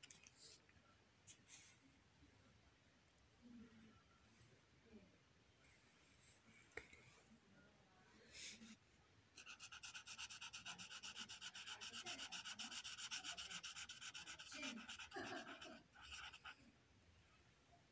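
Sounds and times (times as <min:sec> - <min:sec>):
marker scribbling on paper: 0:09.4 - 0:16.6.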